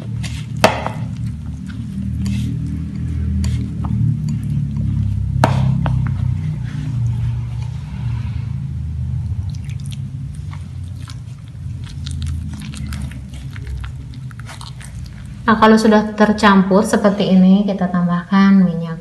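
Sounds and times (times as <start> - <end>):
dough squishing: 0.0 - 8.1, 9.3 - 15.9
low hum: 0.0 - 19.0.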